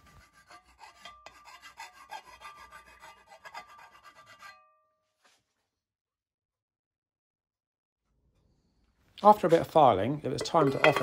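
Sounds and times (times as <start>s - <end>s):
hand file rasping on metal: 0.0s - 4.7s.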